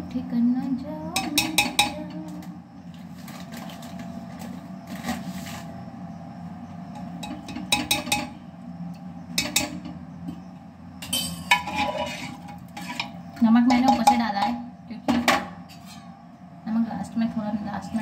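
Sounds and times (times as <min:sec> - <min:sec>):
steady low hum: 0:00.0 - 0:18.0
metal spoon clinking against pot: 0:01.2 - 0:02.0, 0:07.2 - 0:08.3, 0:11.0 - 0:14.6.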